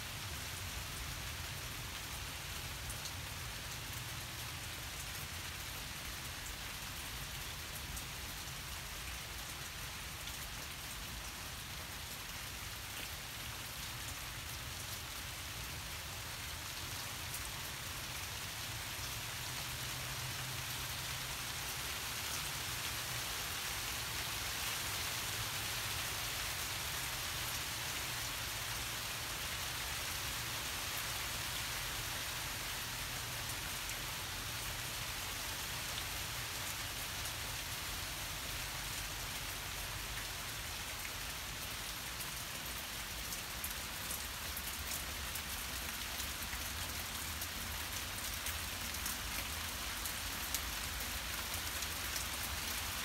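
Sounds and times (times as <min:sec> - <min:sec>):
heavy rain hiss: 0:14.1 - 0:53.0.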